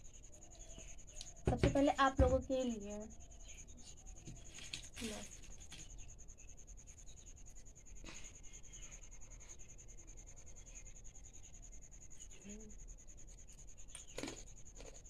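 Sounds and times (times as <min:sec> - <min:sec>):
crunchy wafer being bitten: 0:13.9 - 0:15.0.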